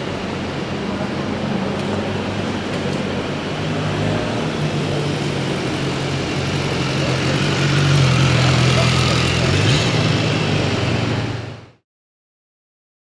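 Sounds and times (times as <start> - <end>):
car engines running slowly: 0.0 - 11.7
motorcycle engine: 2.3 - 11.7.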